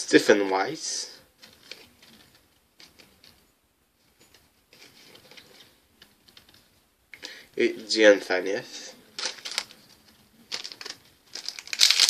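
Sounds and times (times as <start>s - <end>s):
cards and wrappers rustling: 1.4s - 3.4s, 9.2s - 12.0s.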